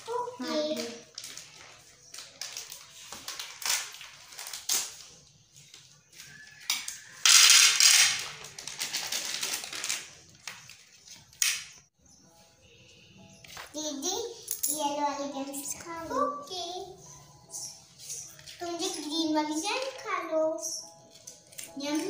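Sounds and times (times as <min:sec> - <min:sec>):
plastic wrappers crinkling: 0:00.0 - 0:11.4.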